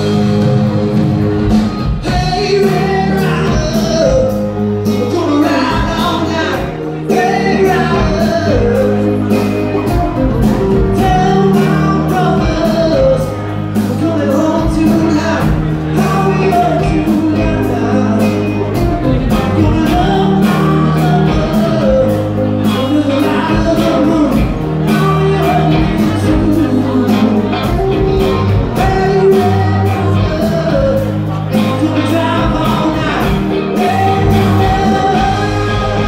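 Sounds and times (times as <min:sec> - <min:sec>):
electric guitars: 0:00.0 - 0:36.0
keyboard: 0:00.0 - 0:36.0
person singing: 0:00.0 - 0:36.0
drum beat: 0:32.2 - 0:36.0.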